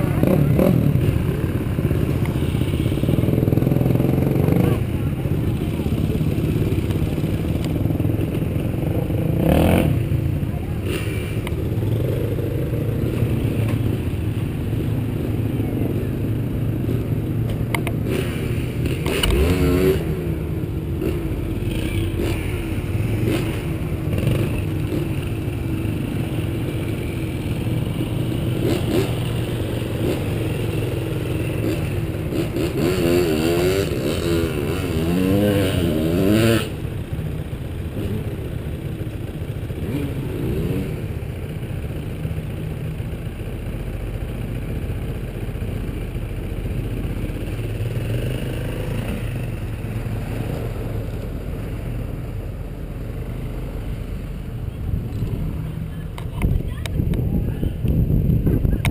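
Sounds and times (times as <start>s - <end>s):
dirt bike engine revving: 18.0s - 20.3s, 21.0s - 25.2s, 28.5s - 30.8s, 31.4s - 36.8s
dirt bike engine idling: 36.3s - 56.4s.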